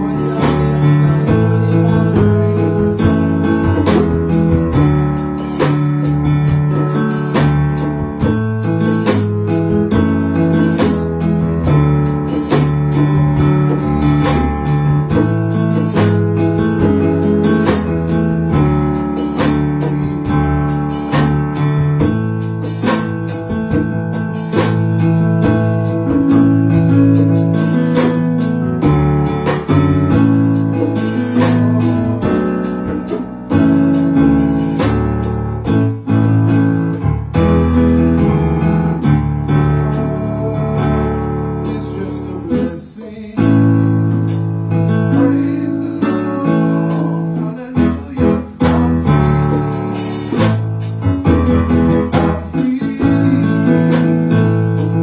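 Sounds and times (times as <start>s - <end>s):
hand drums: 0.0s - 36.6s, 47.8s - 55.0s
bass line: 0.0s - 55.0s
drum kit beat: 0.0s - 55.0s
keyboard chords: 0.0s - 55.0s.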